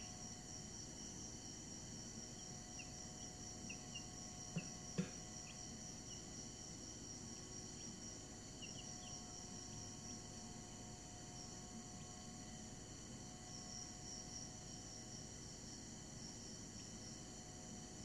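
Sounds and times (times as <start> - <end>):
steady high-pitched whine: 0.0 - 18.0
soft knocks: 4.6 - 5.2.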